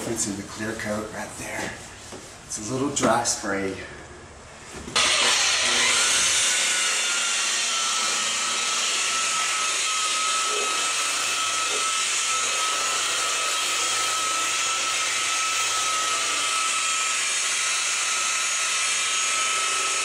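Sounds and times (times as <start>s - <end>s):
electric polisher whining: 4.9s - 20.0s.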